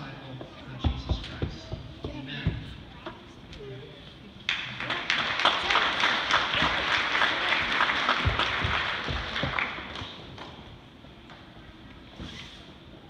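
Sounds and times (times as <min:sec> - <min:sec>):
congregation applauding: 0:04.5 - 0:10.5.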